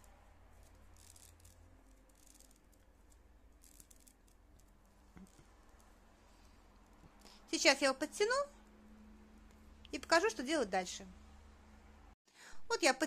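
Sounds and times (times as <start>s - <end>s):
paper tubes rustling and clicking: 0.0s - 7.4s.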